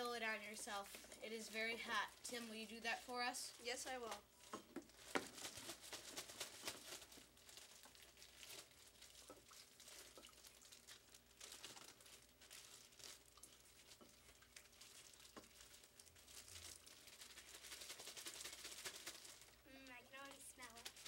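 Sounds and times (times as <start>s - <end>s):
plastic bag crinkling: 0.0s - 21.0s.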